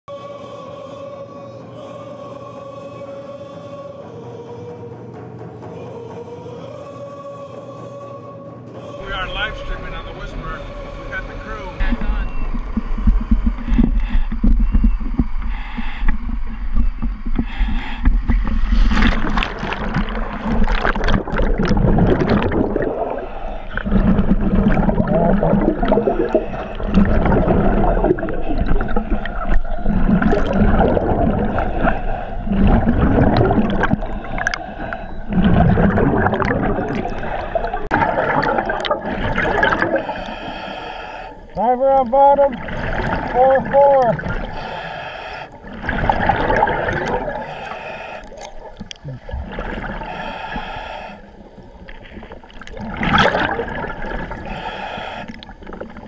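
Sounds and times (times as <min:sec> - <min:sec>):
steady low hum: 0:00.2 - 0:56.0
diver breathing over radio: 0:09.6 - 0:52.3, 0:54.1 - 0:56.0
exhaust bubbles gurgling: 0:11.2 - 0:56.0.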